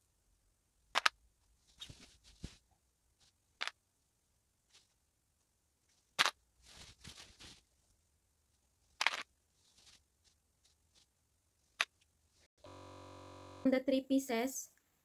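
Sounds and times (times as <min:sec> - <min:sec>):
satin fabric rustling: 0:01.4 - 0:03.5, 0:04.6 - 0:12.5.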